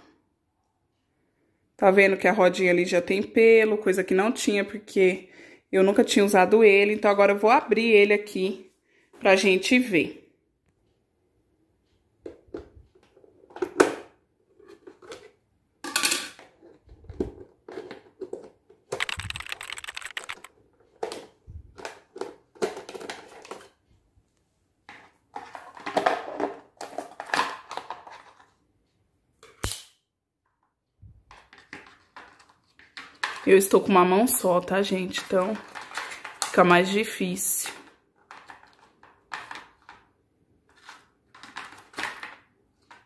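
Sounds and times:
plastic clicks and rattles: 0:17.1 - 0:23.7, 0:35.2 - 0:36.6, 0:37.6 - 0:40.1, 0:40.7 - 0:43.0
sharp plastic snap: 0:29.6 - 0:30.0.

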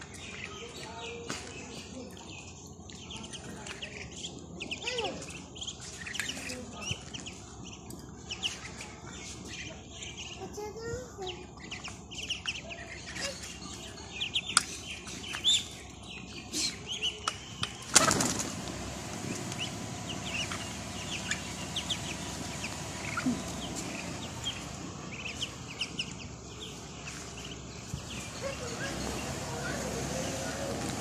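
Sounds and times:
ducklings peeping: 0:00.0 - 0:31.0
wing flapping: 0:17.7 - 0:24.8.

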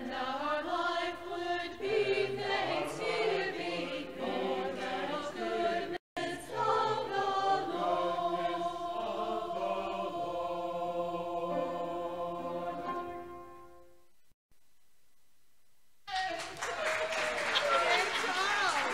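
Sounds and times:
choir singing a hymn: 0:00.0 - 0:13.4.

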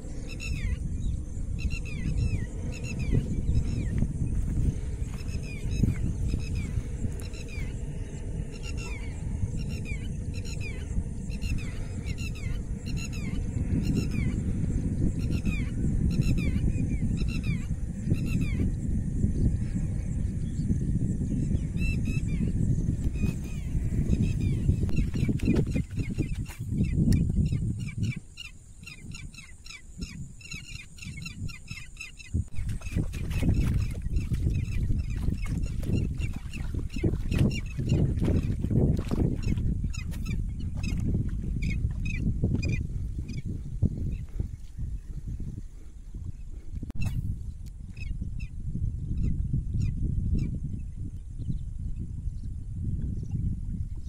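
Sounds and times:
birds calling: 0:00.0 - 0:18.8, 0:21.3 - 0:45.3
wind rumble on microphone: 0:00.0 - 0:54.0.

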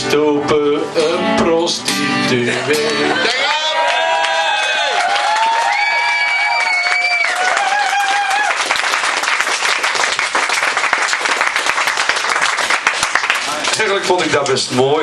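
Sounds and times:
audience cheering: 0:03.0 - 0:13.9
audience clapping: 0:03.1 - 0:14.6.

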